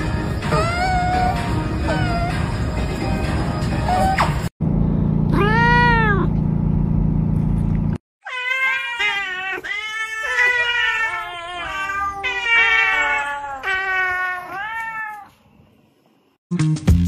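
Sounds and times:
cat yowling: 5.3s - 6.3s, 8.2s - 15.3s.

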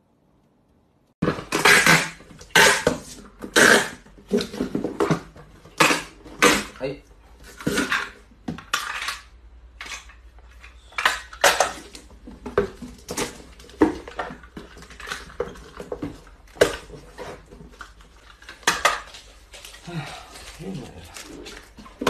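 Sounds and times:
packing tape unrolling: 1.2s - 4.5s.

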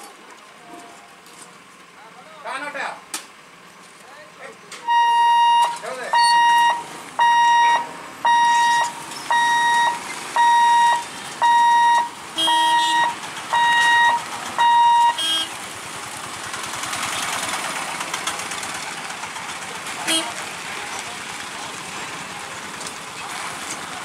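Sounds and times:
vehicle engines: 0.0s - 24.0s
electronic warning beeps: 4.8s - 15.2s.

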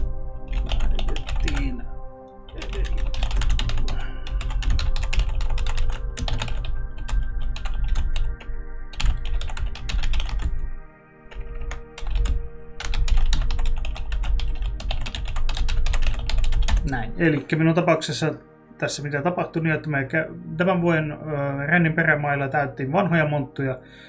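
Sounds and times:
typing on computer keyboard: 0.0s - 1.7s, 2.5s - 10.6s, 11.3s - 16.8s.

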